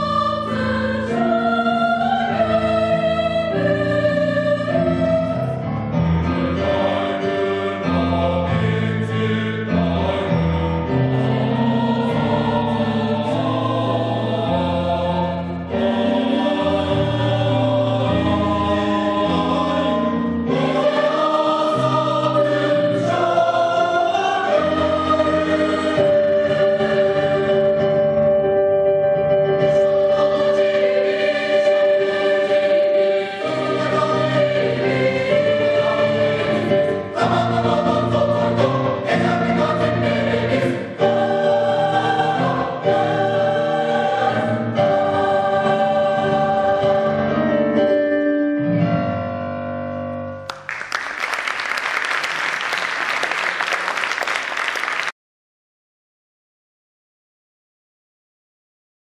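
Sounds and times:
mixed choir singing: 0:00.0 - 0:28.1, 0:29.6 - 0:48.0
audience applause: 0:50.5 - 0:55.2.

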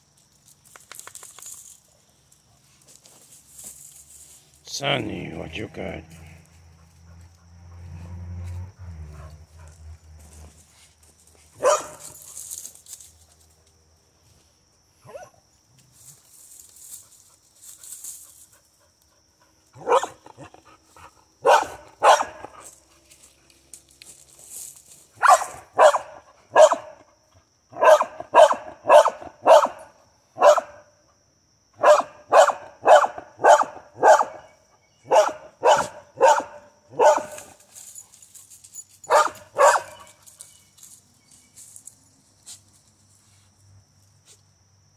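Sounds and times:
dog barking: 0:11.6 - 0:12.0, 0:19.8 - 0:20.5, 0:21.4 - 0:22.5, 0:25.2 - 0:27.0, 0:27.8 - 0:30.9, 0:31.8 - 0:37.5, 0:39.1 - 0:40.1.

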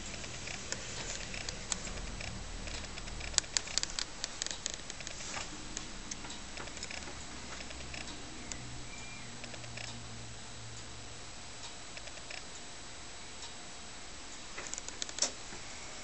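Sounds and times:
sharp clicks: 0:00.0 - 0:05.2, 0:05.8 - 0:08.7, 0:09.4 - 0:10.0, 0:11.6 - 0:12.5, 0:14.6 - 0:15.4
clock pendulum ticking: 0:00.0 - 0:08.7.

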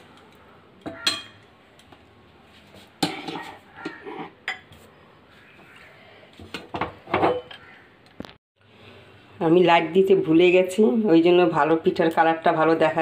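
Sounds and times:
metal spatula scraping pan: 0:03.0 - 0:04.4.

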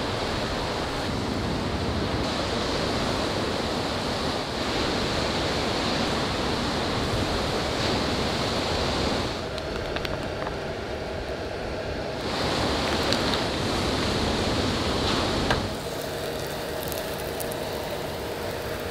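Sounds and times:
butter sizzling in a skillet: 0:15.8 - 0:18.9.

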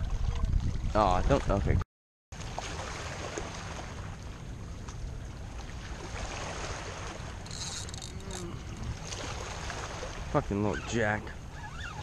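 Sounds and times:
wind noise: 0:00.0 - 0:01.8
small waves lapping on rocks: 0:02.4 - 0:11.2.

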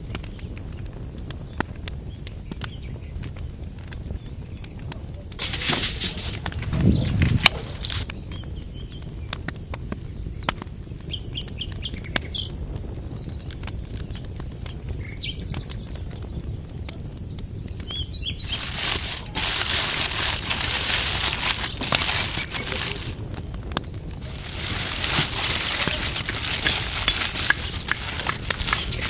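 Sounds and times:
loud hiss: 0:05.4 - 0:08.0, 0:18.4 - 0:23.2.

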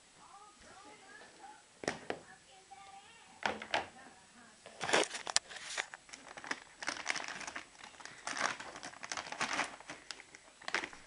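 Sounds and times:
crinkling and rustling: 0:04.6 - 0:11.0.

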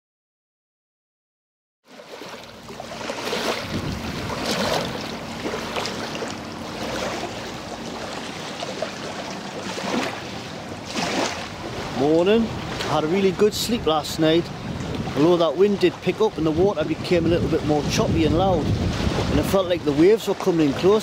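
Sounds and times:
small waves lapping on shore: 0:01.9 - 0:21.0
wind rumble on microphone: 0:02.6 - 0:08.6, 0:09.2 - 0:21.0.

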